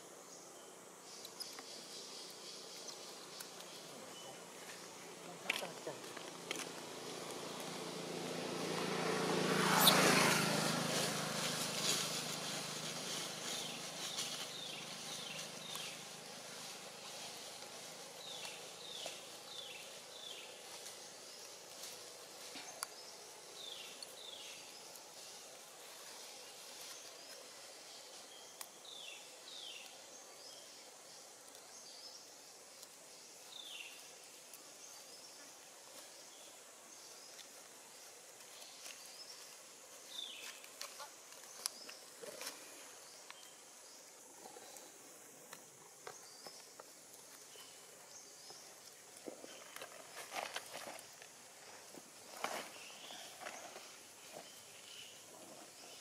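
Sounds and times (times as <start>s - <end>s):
faint insect hum: 0.0s - 56.0s
engine passing by: 6.4s - 17.5s.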